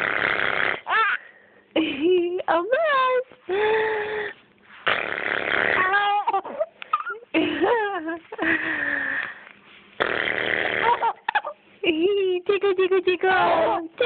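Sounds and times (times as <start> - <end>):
baby giggling and squealing: 0.9 - 1.2, 5.7 - 7.3, 10.8 - 11.6.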